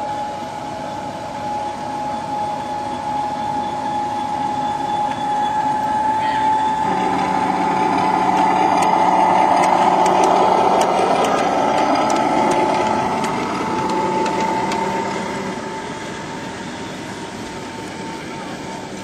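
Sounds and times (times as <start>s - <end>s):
miniature locomotive whine: 0.0s - 19.0s
wheels clicking over rail joints: 6.8s - 19.0s.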